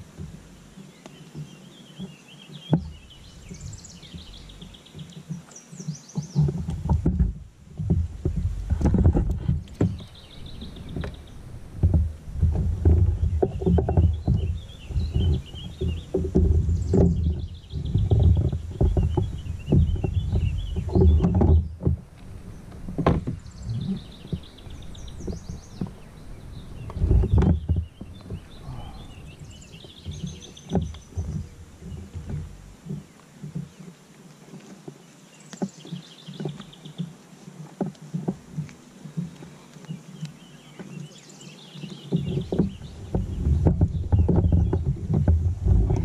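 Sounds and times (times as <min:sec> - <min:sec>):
songbirds singing trilled phrases: 0:00.6 - 0:06.6, 0:09.7 - 0:11.9, 0:12.8 - 0:33.9, 0:39.2 - 0:46.0
knocks from kayak: 0:01.3 - 0:33.9, 0:41.8 - 0:46.0
wind buffeting microphone: 0:05.9 - 0:33.1, 0:41.9 - 0:46.0.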